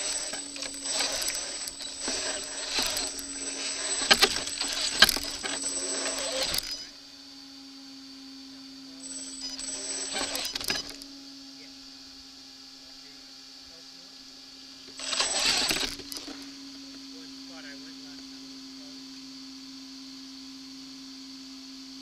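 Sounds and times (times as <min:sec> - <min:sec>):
clicks and clatter on stones: 0:00.0 - 0:06.8, 0:09.0 - 0:11.0, 0:15.0 - 0:16.4
toy car motor whining: 0:00.0 - 0:07.0, 0:09.0 - 0:11.1, 0:14.8 - 0:16.6.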